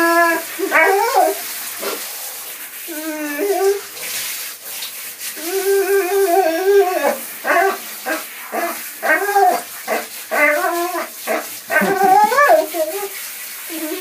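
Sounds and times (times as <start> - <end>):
dog howling: 0.0 - 1.4, 5.4 - 13.1.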